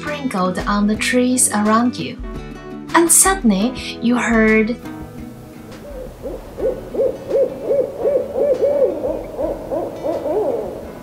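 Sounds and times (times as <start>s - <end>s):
owl hooting: 5.7s - 11.0s.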